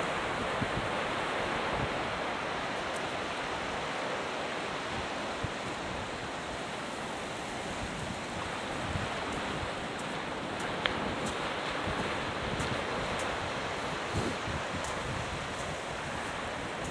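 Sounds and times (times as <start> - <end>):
surf breaking on beach: 0.0 - 16.9
wind buffeting microphone: 4.9 - 16.9.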